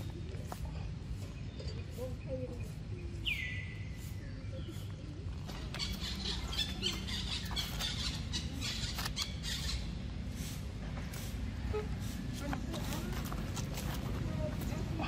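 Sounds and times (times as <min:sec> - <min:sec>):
dry leaves crackling underfoot: 0:00.0 - 0:09.9, 0:10.5 - 0:15.0.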